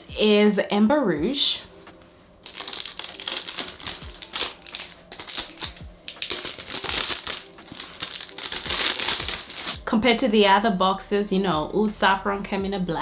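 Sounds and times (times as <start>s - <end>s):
packaging crinkling: 2.4s - 9.8s.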